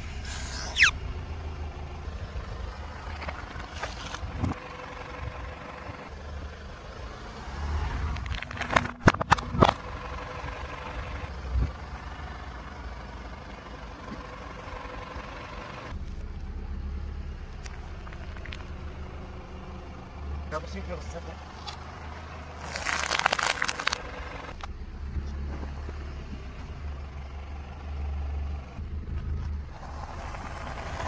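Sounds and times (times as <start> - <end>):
car idling: 0.0 - 7.4, 8.2 - 31.0
tyre rumbling on asphalt: 21.5 - 26.8, 29.1 - 31.0
objects crushed under tyre: 22.6 - 24.1.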